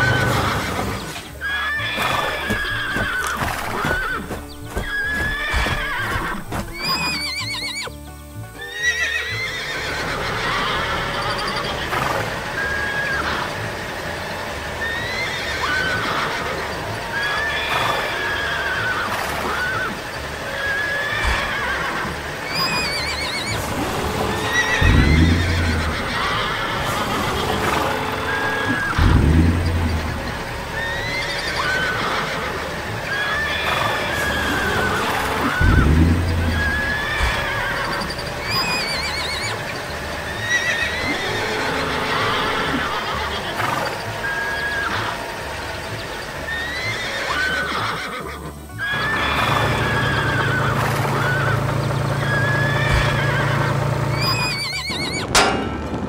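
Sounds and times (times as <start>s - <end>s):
horses neighing and whinnying: 0.0s - 55.7s
deep sound dropping in pitch: 22.6s - 32.5s, 34.2s - 38.9s.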